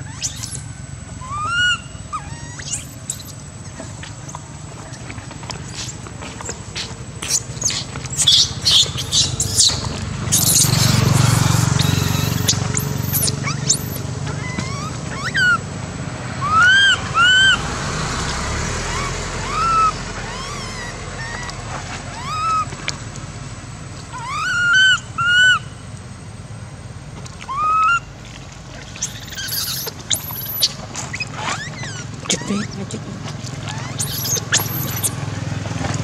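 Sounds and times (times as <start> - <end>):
infant monkey crying: 0.0 - 4.4, 6.8 - 15.6, 16.4 - 17.6, 18.8 - 22.7, 24.1 - 25.7, 27.5 - 28.1, 29.0 - 30.8, 31.4 - 35.2
low background rumble: 0.0 - 36.0.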